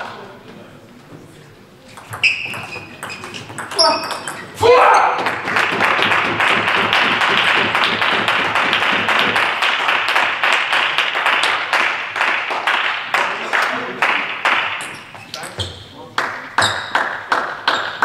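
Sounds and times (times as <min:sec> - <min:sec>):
crowd applauding: 0:05.2 - 0:14.8.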